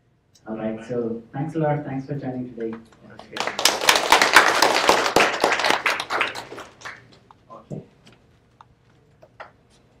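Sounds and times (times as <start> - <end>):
isolated claps: 3.2 - 7.2
audience applause: 3.3 - 7.1.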